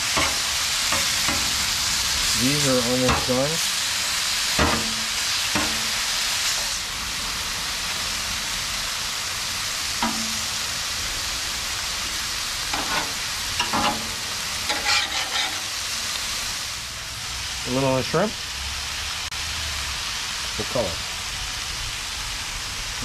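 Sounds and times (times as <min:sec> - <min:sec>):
metal spatula and tongs scraping: 0:00.0 - 0:03.8, 0:04.5 - 0:06.8, 0:10.0 - 0:10.6, 0:12.7 - 0:16.2
meat sizzling on a griddle: 0:00.0 - 0:23.0.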